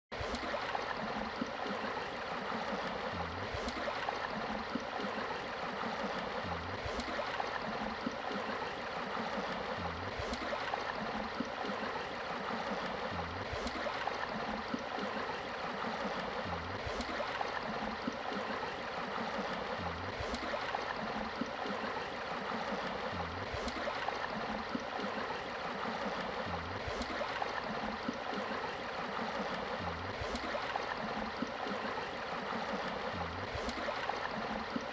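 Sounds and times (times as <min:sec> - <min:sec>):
flowing river water: 0:00.1 - 0:34.9.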